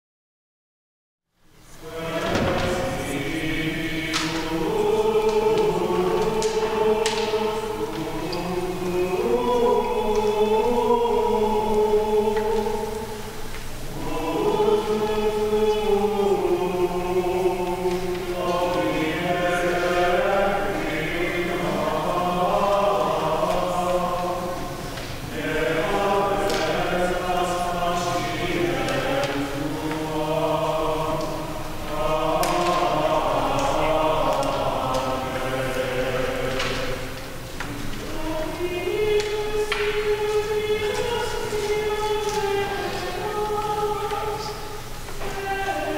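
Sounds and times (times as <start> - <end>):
choir singing: 1.6 - 45.9.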